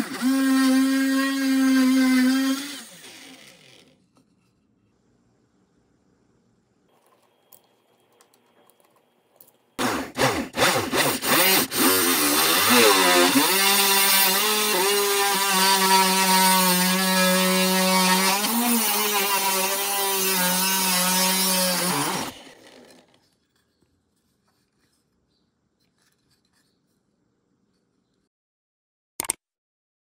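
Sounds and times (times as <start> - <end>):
mini drill press motor whining: 0.0 - 4.0
drill bit drilling into wood: 9.8 - 23.1.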